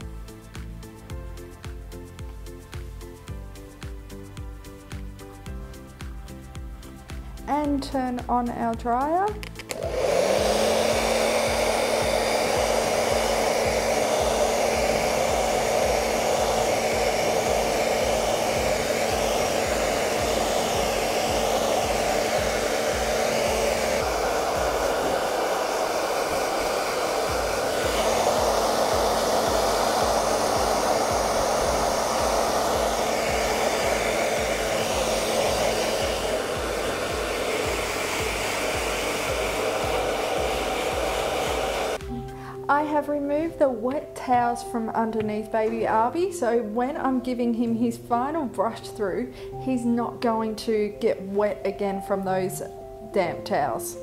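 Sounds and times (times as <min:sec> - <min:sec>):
pet blow dryer running: 0:09.6 - 0:42.2.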